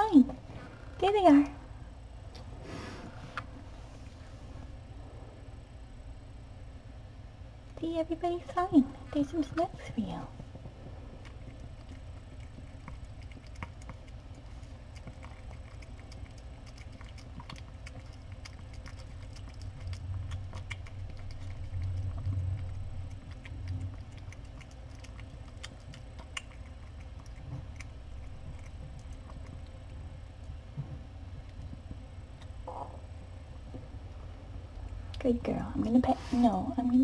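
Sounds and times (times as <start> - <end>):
low steady hum: 0.0 - 37.0
cat eating from metal bowl: 9.2 - 35.4.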